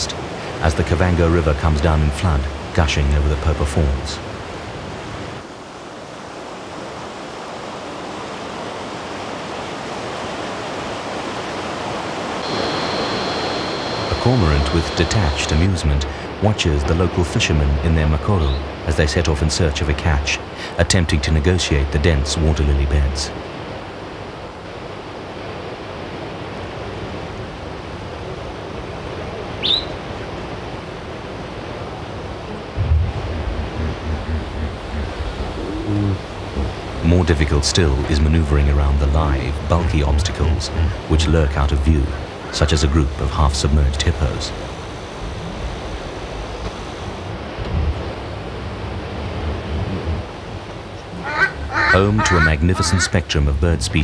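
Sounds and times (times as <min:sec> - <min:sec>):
river rushing over rapids: 0:00.0 - 0:53.1
bird chirp: 0:29.6 - 0:30.0.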